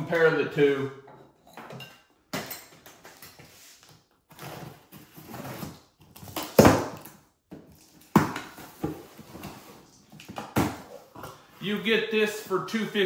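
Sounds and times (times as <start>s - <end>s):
knife slitting cardboard box: 4.3s - 7.0s.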